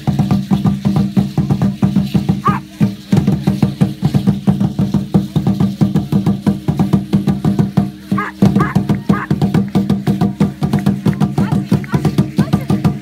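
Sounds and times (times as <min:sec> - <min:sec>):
drum fast even beat: 0:00.0 - 0:13.0
dog whining: 0:08.2 - 0:09.3.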